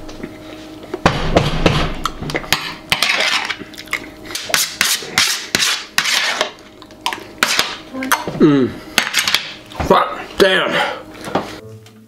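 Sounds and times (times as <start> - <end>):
fork scraping metal baking sheet: 4.4 - 6.5.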